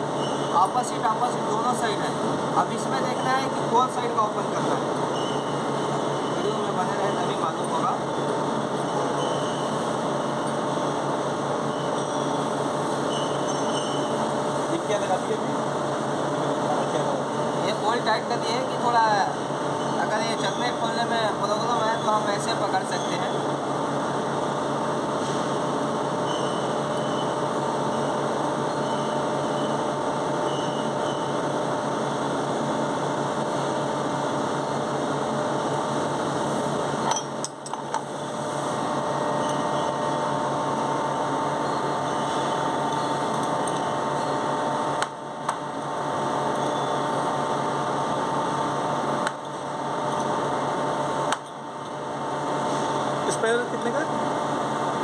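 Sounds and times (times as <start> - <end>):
machine hum: 23.3 - 55.0.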